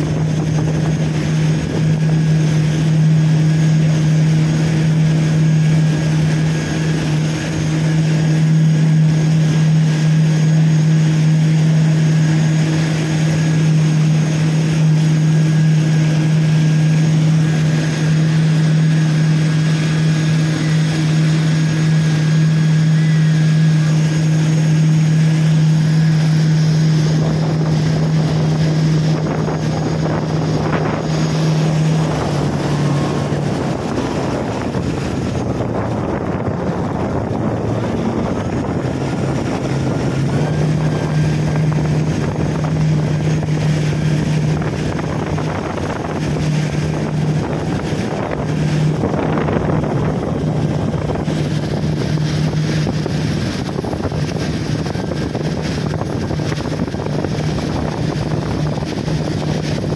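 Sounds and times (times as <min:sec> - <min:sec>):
motorboat engine droning: 0:00.0 - 0:59.9
rushing water: 0:00.0 - 0:59.9
wind: 0:00.0 - 0:59.9.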